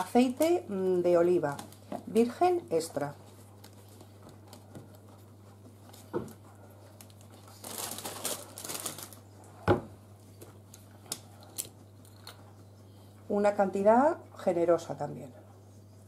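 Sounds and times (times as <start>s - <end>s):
parsley leaves rustling and crinkling: 0.0s - 9.4s.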